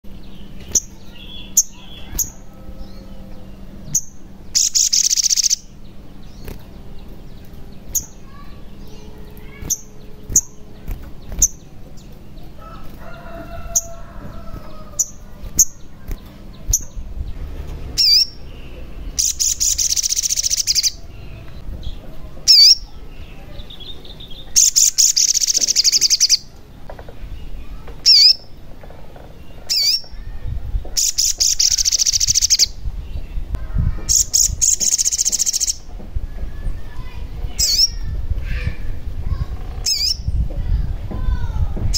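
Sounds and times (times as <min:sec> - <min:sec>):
bird chirping: 0:00.0 - 0:26.8, 0:31.0 - 0:38.7, 0:39.3 - 0:40.4
fast buzzy bird trills: 0:00.4 - 0:17.2, 0:17.9 - 0:21.4, 0:24.3 - 0:26.5, 0:31.0 - 0:32.8, 0:34.1 - 0:35.8, 0:37.5 - 0:40.4.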